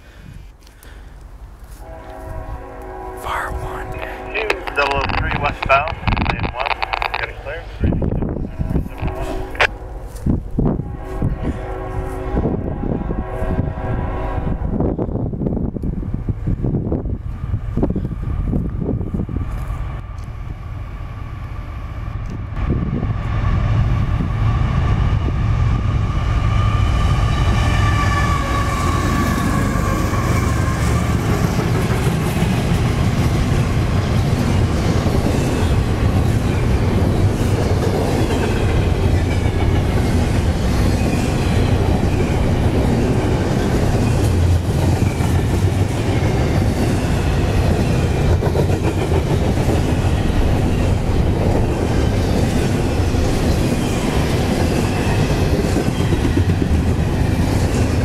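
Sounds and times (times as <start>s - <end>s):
freight train rumbling past: 1.4s - 58.0s
wheels clattering on rails: 4.6s - 7.4s, 28.9s - 58.0s.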